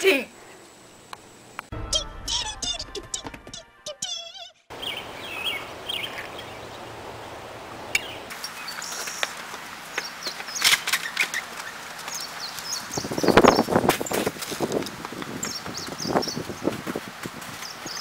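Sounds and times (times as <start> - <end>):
steady background hiss: 0.0 - 1.7
birds chirping: 4.7 - 14.4, 15.1 - 18.0.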